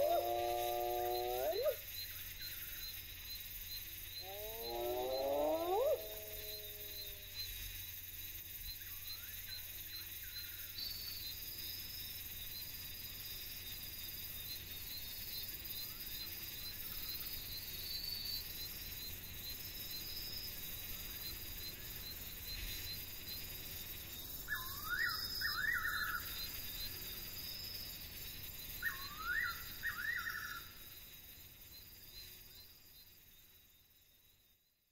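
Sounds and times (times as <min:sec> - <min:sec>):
animal quick rising calls: 0:00.0 - 0:01.8, 0:04.2 - 0:07.2
crickets and insects chorus: 0:00.0 - 0:34.9.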